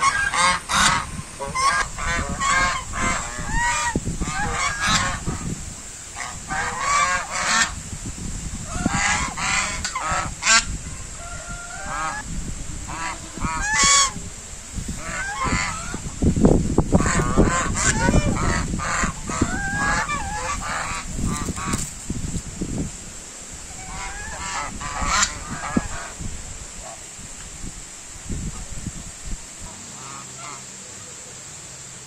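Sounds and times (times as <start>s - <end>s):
geese honking: 0.0s - 7.8s, 8.6s - 16.3s, 16.9s - 21.8s, 23.7s - 26.2s, 29.6s - 31.1s.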